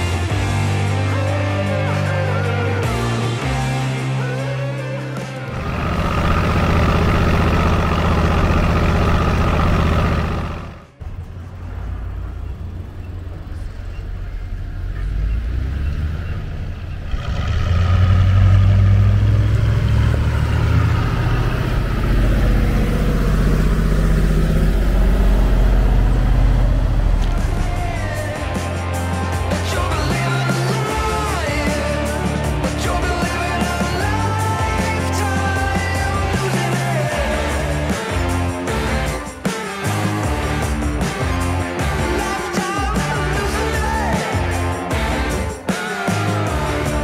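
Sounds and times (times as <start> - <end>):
diesel truck engine rumbling: 5.4 - 39.3.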